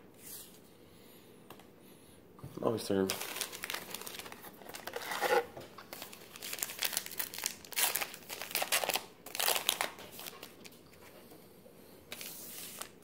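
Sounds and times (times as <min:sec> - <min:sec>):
plastic wrapper crinkling: 0:03.0 - 0:10.8.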